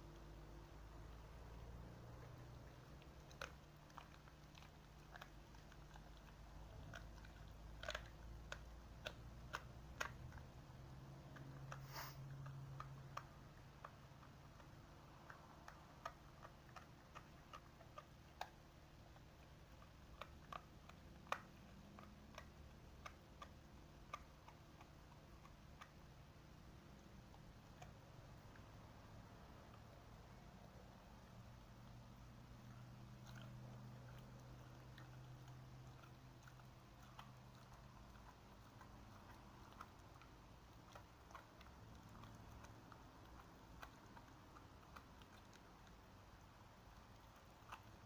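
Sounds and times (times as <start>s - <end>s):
dogs chewing: 0.0s - 48.0s
short hiss: 11.8s - 12.2s.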